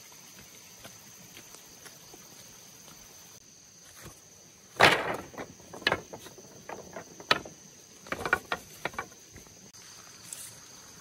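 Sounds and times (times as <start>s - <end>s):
wooden poles knocking together: 4.8s - 9.6s.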